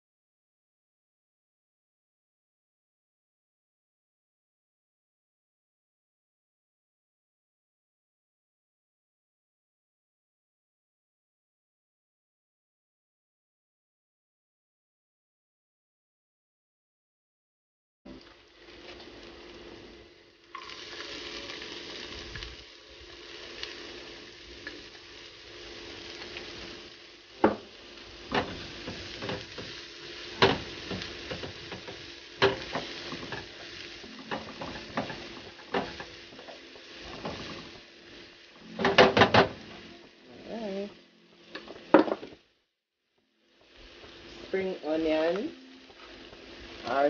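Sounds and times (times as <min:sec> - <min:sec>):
onion sizzling in hot oil: 0:18.1 - 0:42.5, 0:43.2 - 0:47.0
tongs tapping metal pan: 0:30.4 - 0:33.6.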